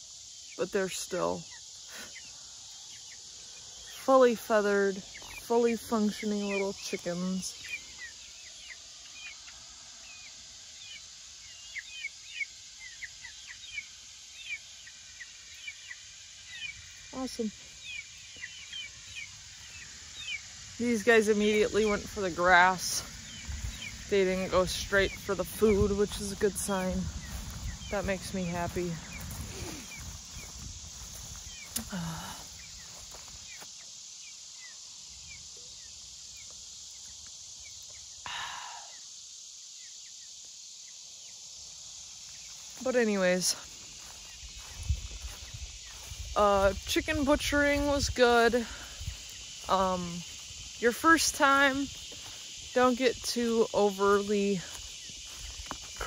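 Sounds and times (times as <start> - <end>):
steady outdoor hiss: 0.0 - 56.0
chicks peeping: 1.5 - 33.8.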